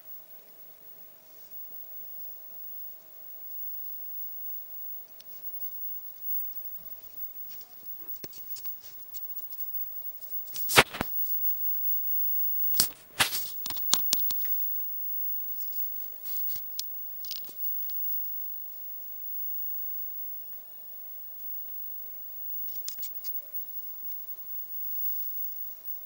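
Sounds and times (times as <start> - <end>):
faint steady hum: 0.0 - 26.0
tinsel and branches rustling: 12.8 - 14.6.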